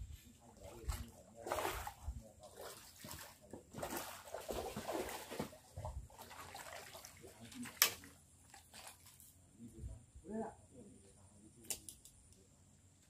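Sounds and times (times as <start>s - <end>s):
fish splashing at water surface: 2.6s - 9.2s.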